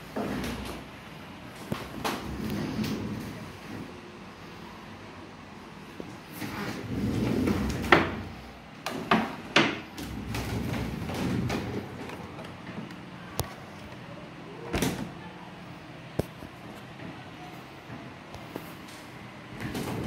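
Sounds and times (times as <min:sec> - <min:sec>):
low rumbling handling noise: 0:00.0 - 0:04.0, 0:06.0 - 0:14.1.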